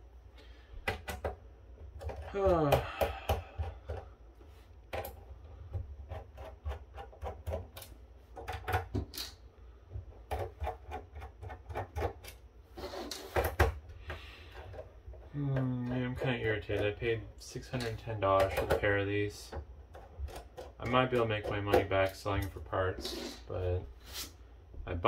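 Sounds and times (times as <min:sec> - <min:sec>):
scraping rub on metal: 0:10.6 - 0:13.4.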